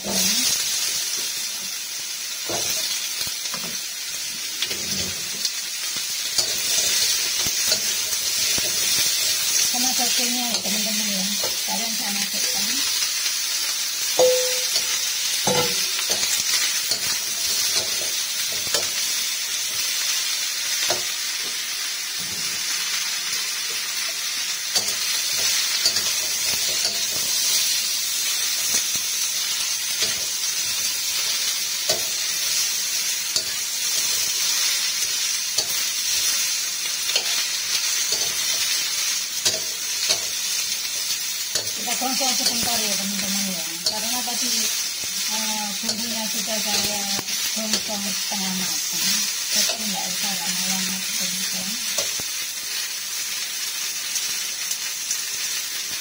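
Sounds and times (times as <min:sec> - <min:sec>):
food sizzling in wok: 0:00.0 - 0:56.0
ringing metal clink: 0:14.2 - 0:15.8
metal spatula scraping wok: 0:35.5 - 0:45.0.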